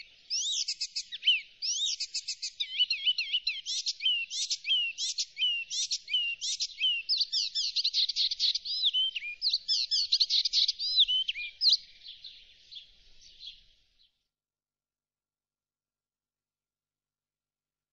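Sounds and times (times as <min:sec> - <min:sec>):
bird singing: 0:00.0 - 0:14.2.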